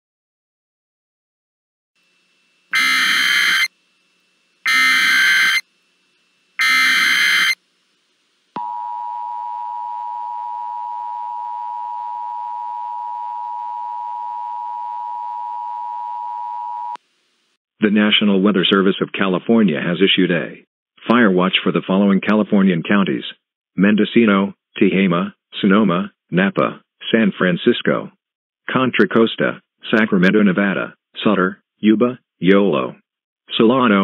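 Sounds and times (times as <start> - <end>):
digital data bursts: 2.7 - 3.7, 4.6 - 5.6, 6.6 - 7.6.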